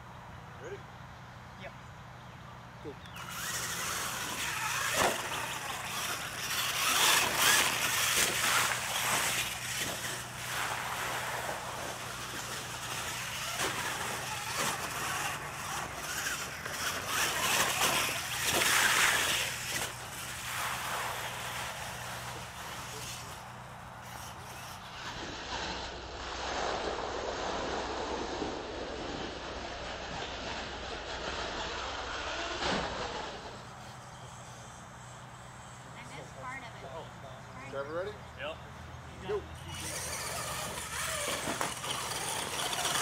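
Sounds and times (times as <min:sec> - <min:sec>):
rc truck motor: 0:02.9 - 0:25.8, 0:30.1 - 0:37.0, 0:39.3 - 0:43.0.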